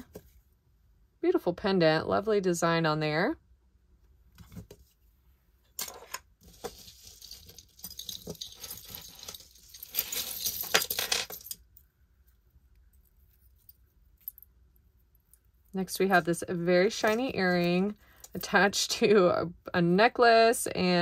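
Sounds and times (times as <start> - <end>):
metal jewellery chains jingling: 6.7 - 11.6.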